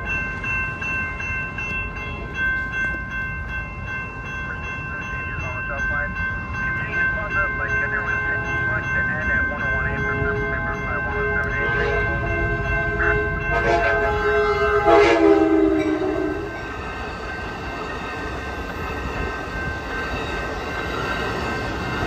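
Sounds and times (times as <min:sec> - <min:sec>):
crossing bell ringing: 0:00.0 - 0:22.0
train cars rumbling over rails: 0:00.0 - 0:22.0
train horn blasts: 0:10.3 - 0:16.6.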